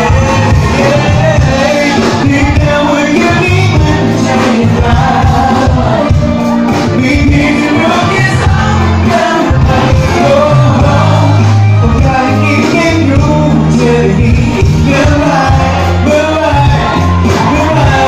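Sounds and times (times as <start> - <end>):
bass notes: 0.0 - 18.0
live pop band music: 0.0 - 18.0
person singing: 0.0 - 18.0.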